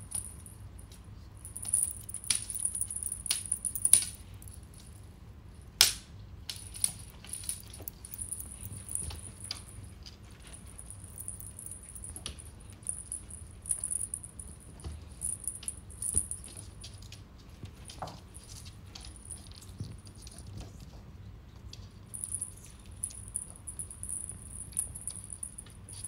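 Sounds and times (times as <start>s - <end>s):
faint jangling rattle: 1.4s - 4.8s, 6.6s - 17.1s, 22.1s - 26.0s.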